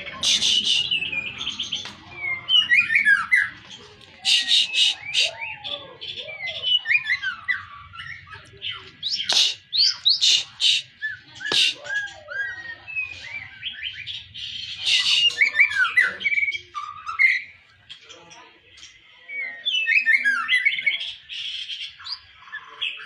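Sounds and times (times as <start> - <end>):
songbird singing varied song: 4.2 - 17.5.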